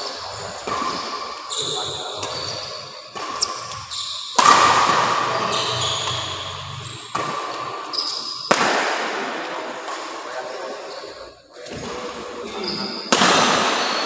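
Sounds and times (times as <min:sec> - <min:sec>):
sneakers squeaking on court: 0:00.2 - 0:08.5, 0:10.9 - 0:14.0
racket striking shuttlecock: 0:03.1 - 0:07.8.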